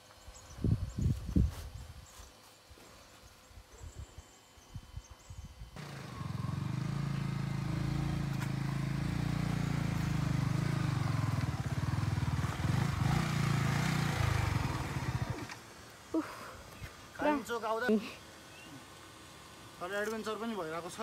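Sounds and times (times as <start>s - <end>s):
motorcycle engine at low revs: 5.6s - 17.1s.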